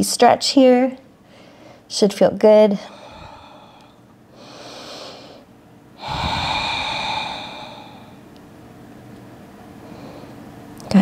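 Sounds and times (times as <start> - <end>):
woman breathing deeply: 1.2 - 1.9, 2.8 - 8.3, 9.8 - 10.5.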